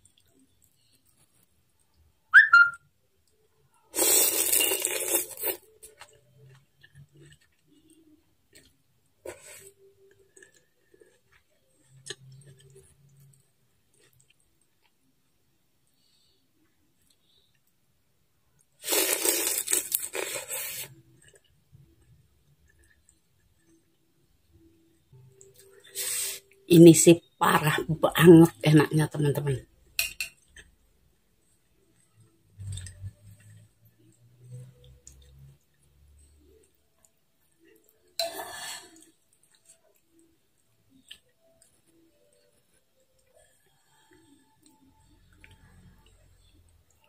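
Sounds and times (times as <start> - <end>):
whistle-like puff: 2.4 - 2.8
person slurping noodles: 3.9 - 5.7, 18.8 - 21.0.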